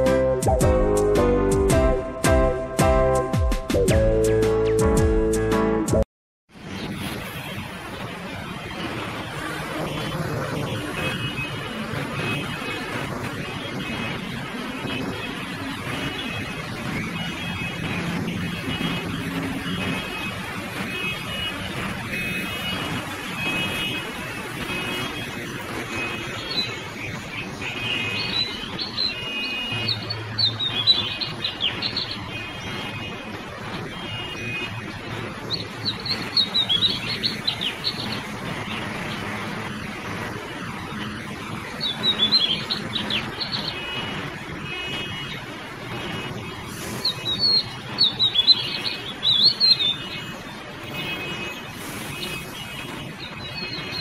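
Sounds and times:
low traffic rumble: 6.5s - 54.0s
bird chirps: 47.0s - 50.3s.

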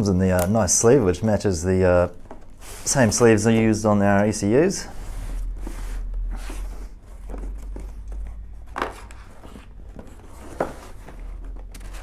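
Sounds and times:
steady low hum: 0.0s - 12.0s
cardboard box scraping and tapping: 5.0s - 12.0s.

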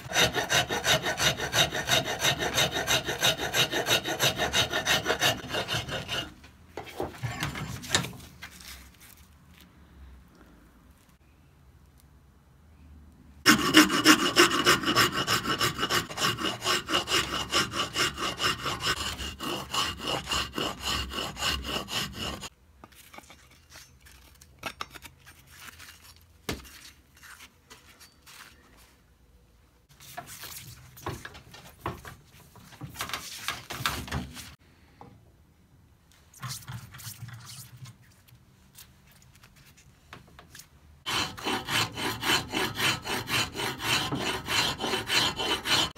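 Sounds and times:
tool shaping wooden handle: 0.0s - 8.1s, 13.5s - 22.6s, 41.1s - 45.9s.

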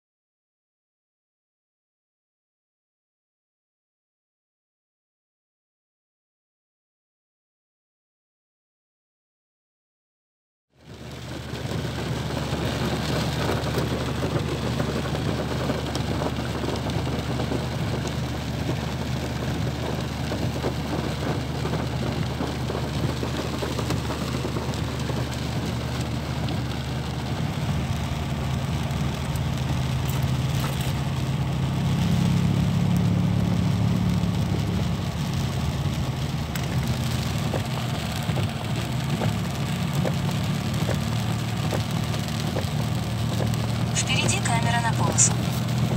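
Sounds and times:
car engine idling: 10.8s - 45.9s
heavy rain on car roof: 10.8s - 45.9s.

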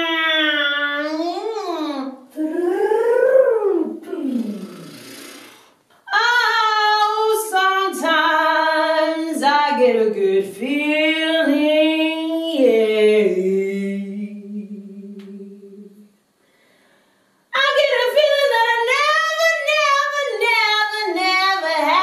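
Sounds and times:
woman singing a cappella: 6.0s - 16.2s, 17.5s - 22.0s.

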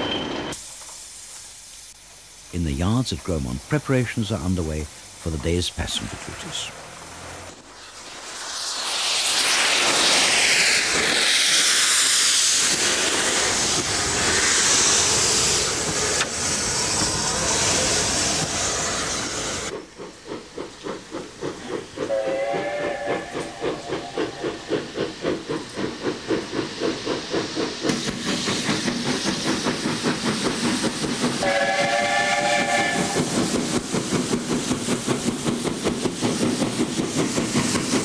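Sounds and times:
steam hissing: 0.0s - 38.0s
locomotive exhaust chuffs: 8.2s - 38.0s
steam whistle blast: 22.1s - 24.0s, 31.4s - 33.2s.

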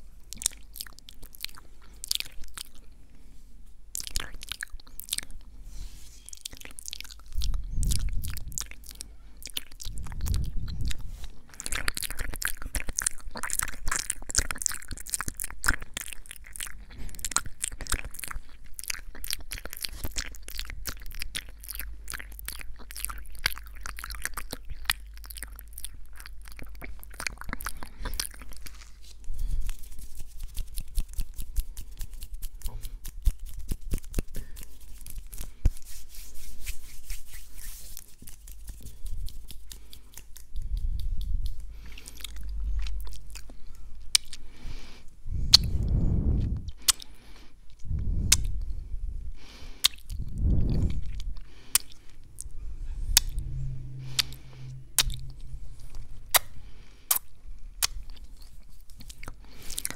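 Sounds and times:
wet mouth clicks and smacks: 0.3s - 2.9s, 3.9s - 5.5s, 6.3s - 28.9s, 29.6s - 35.8s, 37.1s - 44.6s, 45.5s - 46.0s, 46.6s - 48.8s, 49.8s - 52.0s.

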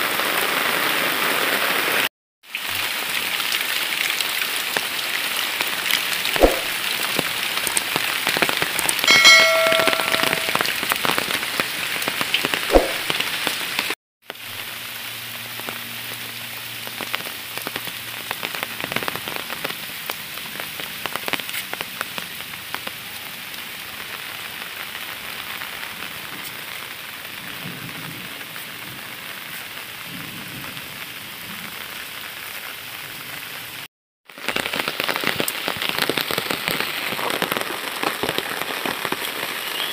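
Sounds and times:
heavy rain on leaves: 0.0s - 39.9s
brief high tone: 9.1s - 10.7s.

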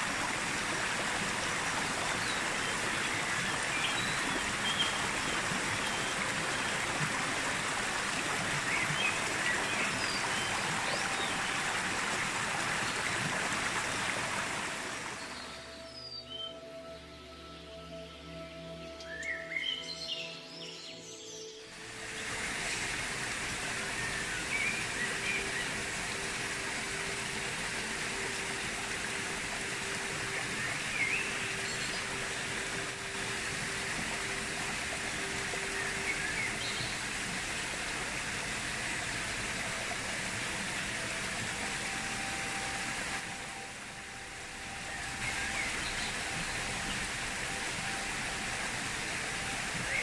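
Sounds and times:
stream rushing over rocks: 0.0s - 15.8s, 21.5s - 50.0s.

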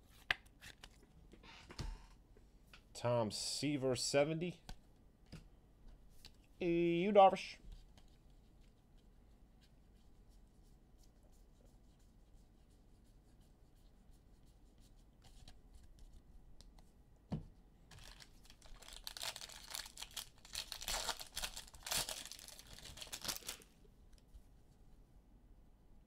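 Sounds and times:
foil wrapper ripped and crumpled: 17.9s - 23.7s.

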